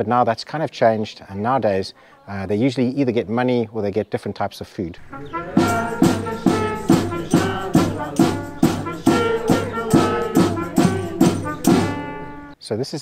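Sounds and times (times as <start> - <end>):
folk music by street musicians: 5.0 - 12.6
jingling percussion: 5.0 - 12.6.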